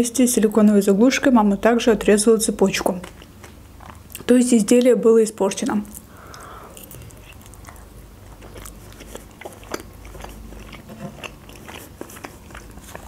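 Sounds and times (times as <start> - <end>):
mouth chewing clicks and smacks: 2.6 - 4.9, 6.0 - 13.0.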